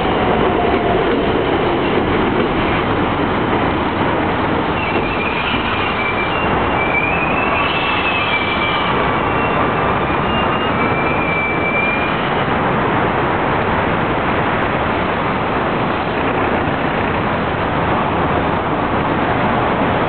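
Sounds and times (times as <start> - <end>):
train rushing noise: 0.0 - 20.0
wheel and brake squeals: 4.7 - 12.5.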